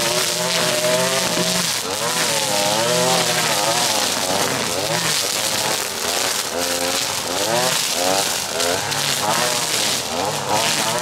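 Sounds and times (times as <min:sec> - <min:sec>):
string trimmer cutting grass: 0:00.0 - 0:11.0.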